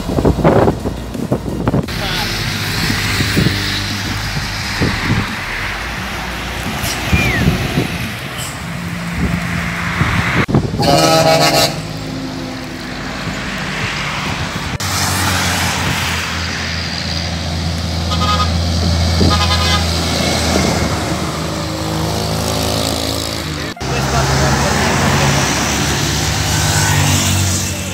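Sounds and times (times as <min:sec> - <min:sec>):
highway traffic: 0:00.0 - 0:27.9
truck engine drone: 0:00.0 - 0:27.9
truck horn blast: 0:10.7 - 0:12.1, 0:18.0 - 0:20.2, 0:23.5 - 0:26.6.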